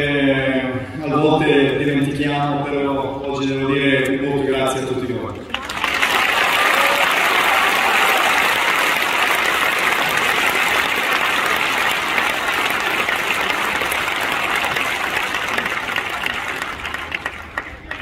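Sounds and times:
crowd applauding: 5.4s - 18.0s.

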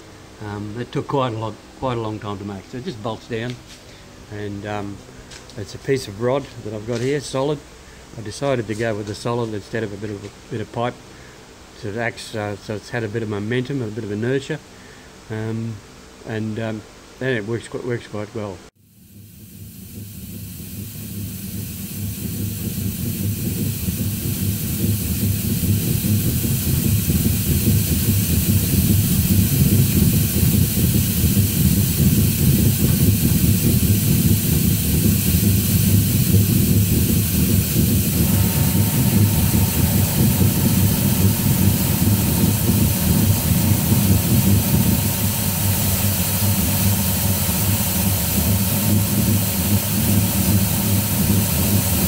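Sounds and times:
low mechanical rumble: 0.0s - 17.2s, 18.6s - 52.0s
faint steady whine: 0.0s - 52.0s
hiss of mist spray: 18.8s - 52.0s.

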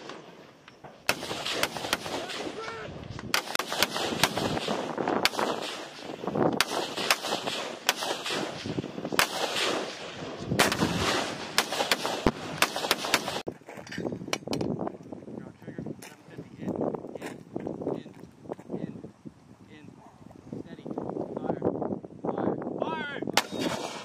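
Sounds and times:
rifle shots with echoes: 1.0s - 13.5s, 23.4s - 24.0s.

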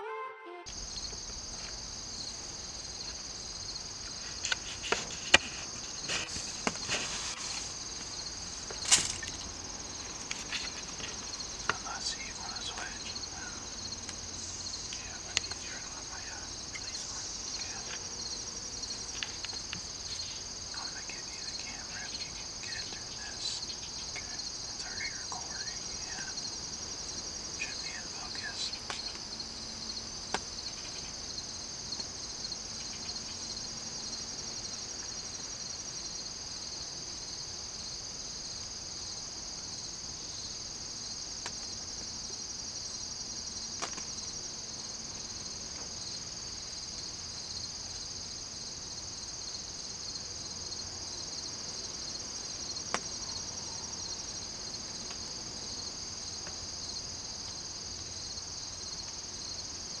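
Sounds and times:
insects trilling: 0.7s - 60.0s
faint ticks: 10.1s - 18.1s, 28.7s - 29.3s.

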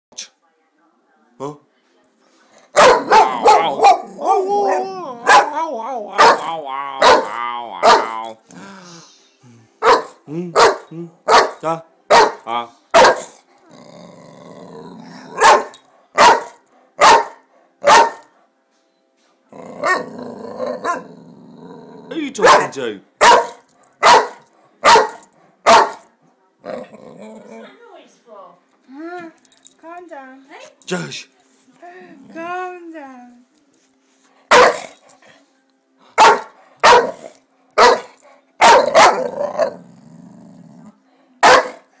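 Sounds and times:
puppy barking: 2.8s - 8.3s, 9.8s - 13.4s, 15.4s - 18.3s, 22.4s - 26.1s, 34.5s - 34.9s, 36.2s - 39.7s, 41.4s - 41.8s
puppy low grumble: 5.0s - 9.6s, 13.6s - 15.4s, 19.5s - 22.2s, 26.6s - 27.7s, 39.2s - 41.0s.

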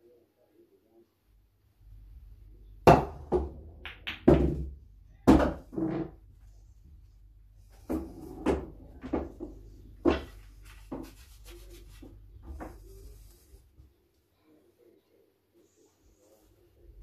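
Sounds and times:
footsteps: 7.6s - 14.0s
pool cue knocks and rubbing: 7.8s - 11.3s.

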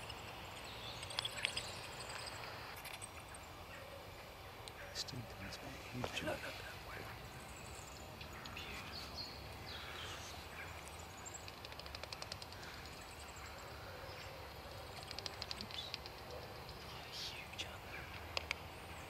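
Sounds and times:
bats chattering: 0.0s - 19.0s
rapid ticking rattles: 11.2s - 13.4s, 14.9s - 16.9s.

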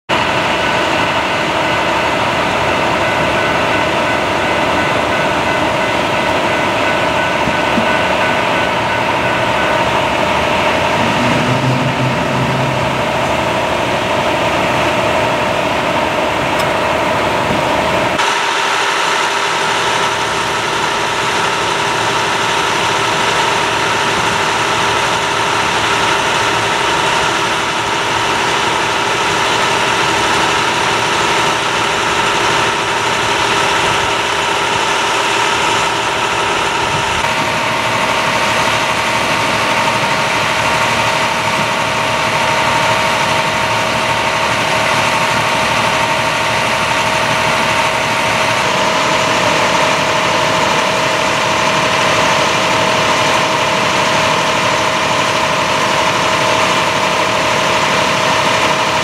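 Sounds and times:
vehicle engines idling: 0.1s - 59.0s
steady whine: 0.2s - 18.2s.

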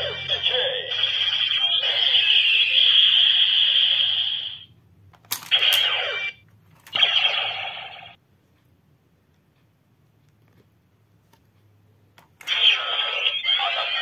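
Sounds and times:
electronic sound effects: 7.0s - 8.2s.

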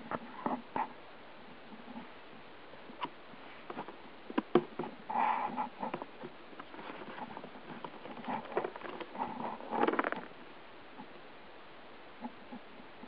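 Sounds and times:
scratching on cardboard box: 5.1s - 10.3s.

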